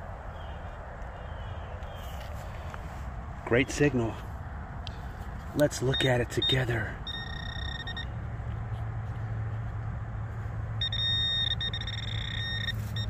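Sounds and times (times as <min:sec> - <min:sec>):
steady low hum: 0:00.0 - 0:13.0
high-pitched metal detector tone: 0:05.9 - 0:08.1, 0:10.8 - 0:13.0.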